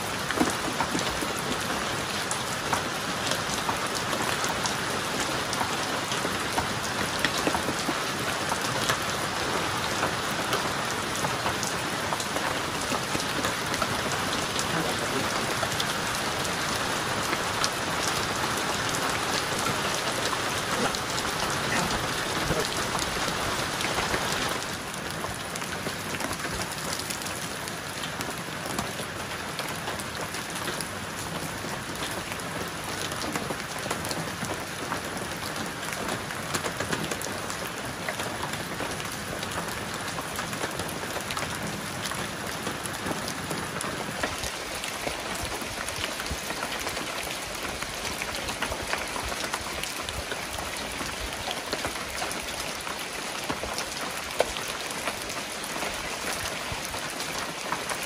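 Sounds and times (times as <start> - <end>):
rain falling: 0.0 - 58.0.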